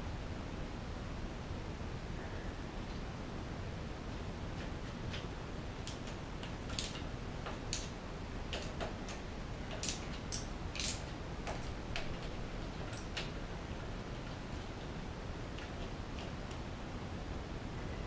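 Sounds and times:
tool clicking on bolts: 0:05.1 - 0:13.5.

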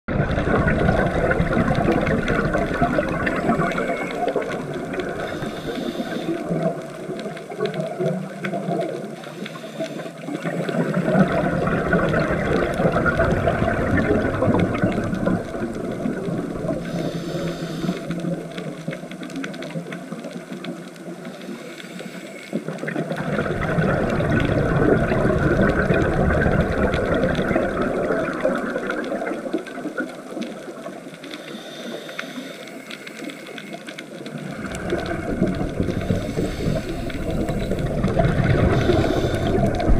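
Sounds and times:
gurgling exhaled bubbles: 0:00.1 - 0:31.5, 0:33.4 - 0:39.9
scuba regulator breathing underwater: 0:01.8 - 0:06.9, 0:09.1 - 0:13.8, 0:14.7 - 0:18.8, 0:31.3 - 0:39.9.

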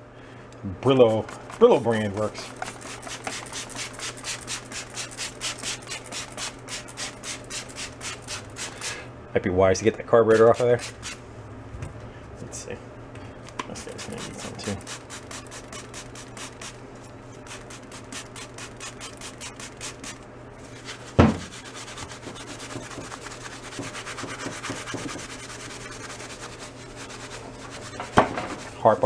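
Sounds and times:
steel wool scrubbing metal: 0:17.5 - 0:29.0
loud knock: 0:21.2 - 0:21.5.

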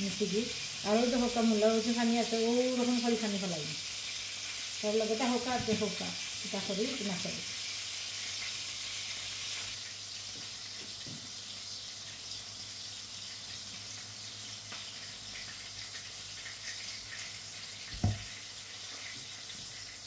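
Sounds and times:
dull thump: 0:18.0 - 0:18.2.

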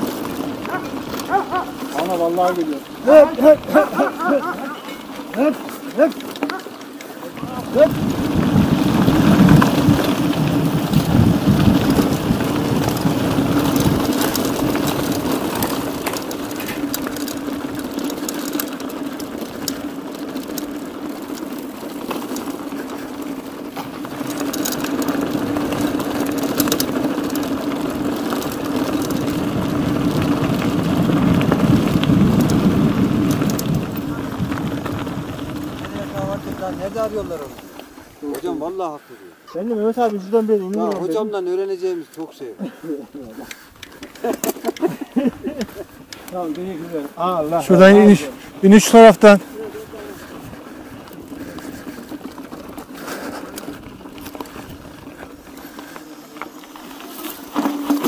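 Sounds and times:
bike rattles and clicks: 0:00.0 - 0:58.0
bike tyre rumble: 0:00.0 - 0:58.0
wind noise on microphone: 0:07.4 - 0:18.0, 0:27.8 - 0:37.6, 0:49.8 - 0:56.0.

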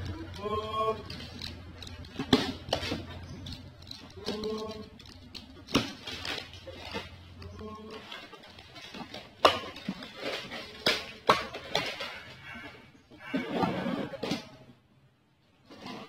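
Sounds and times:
tape and cardboard rustling: 0:00.0 - 0:12.6.

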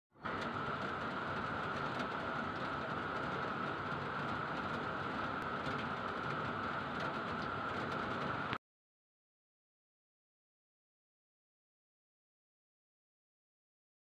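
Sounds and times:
faint steady whine: 0:00.2 - 0:08.6.

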